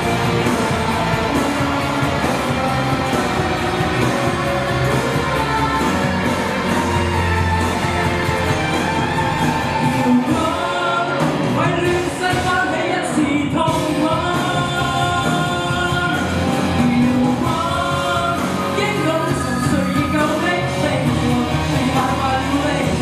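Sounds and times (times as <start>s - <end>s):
backing music through speakers: 0.0s - 23.0s
man singing into microphone: 10.2s - 23.0s.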